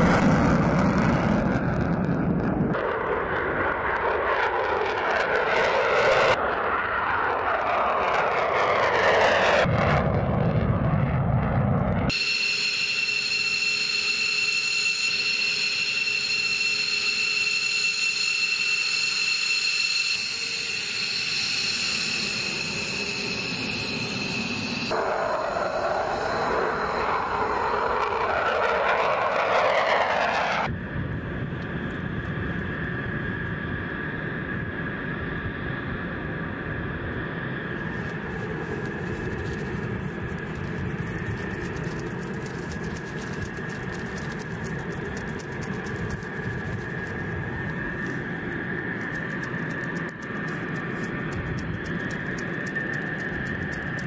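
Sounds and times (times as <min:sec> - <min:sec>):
high-pitched jet whine: 0:00.0 - 0:54.0
jet roaring: 0:00.0 - 0:54.0
rushing roar: 0:24.9 - 0:30.7.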